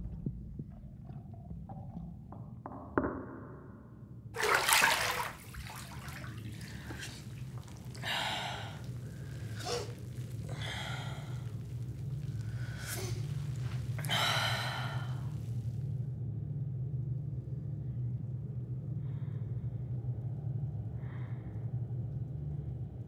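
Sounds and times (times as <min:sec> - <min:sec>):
low steady hum: 0:03.4 - 0:23.0
water splash: 0:04.4 - 0:11.4
woman breathing hard: 0:06.6 - 0:11.6, 0:12.5 - 0:15.4
woman gasping: 0:06.6 - 0:11.6, 0:12.6 - 0:15.3.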